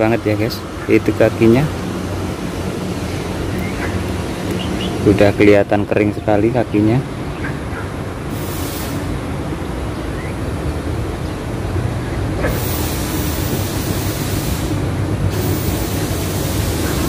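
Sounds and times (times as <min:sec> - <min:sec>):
high hiss: 0:08.3 - 0:09.5, 0:12.4 - 0:17.0.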